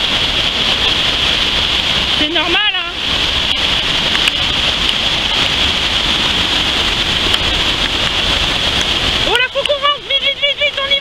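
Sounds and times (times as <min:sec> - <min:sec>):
stream rushing in flood: 0:00.0 - 0:11.0.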